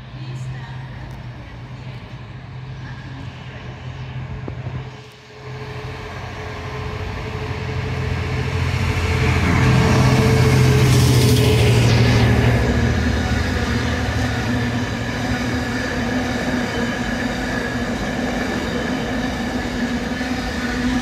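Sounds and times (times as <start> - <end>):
diesel locomotive engine drone: 0.0 - 21.0
train wagons running past: 0.0 - 21.0.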